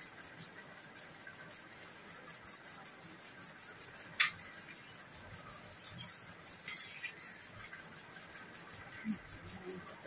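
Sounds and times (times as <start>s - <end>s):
metal spoon scraping steel bowl: 5.8s - 7.6s.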